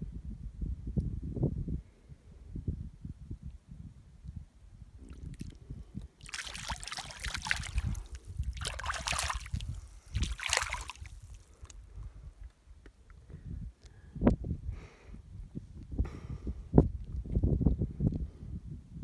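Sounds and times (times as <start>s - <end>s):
water sloshing around wading foot: 6.2s - 11.7s.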